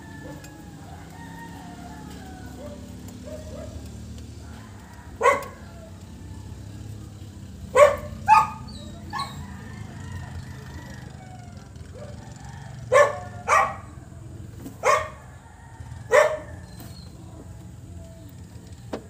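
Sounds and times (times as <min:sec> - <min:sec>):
dog barking: 0:02.6 - 0:03.9, 0:05.2 - 0:05.7, 0:07.7 - 0:09.4, 0:12.9 - 0:14.0, 0:14.8 - 0:15.3, 0:16.1 - 0:16.8.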